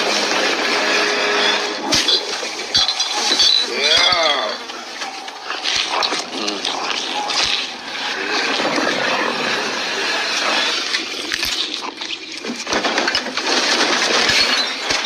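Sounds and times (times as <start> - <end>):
man chewing wetly: 4.6 - 13.1.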